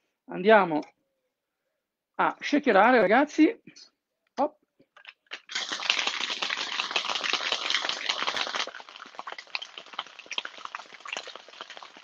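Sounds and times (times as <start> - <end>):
ice rattling in cocktail shaker: 5.0 - 12.0.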